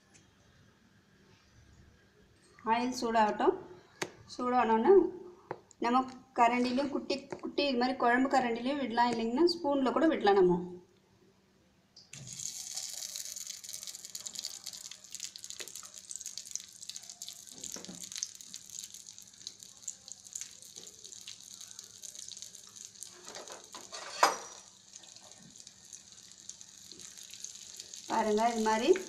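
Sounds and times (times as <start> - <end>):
batter sizzling in hot oil: 12.2 - 29.0.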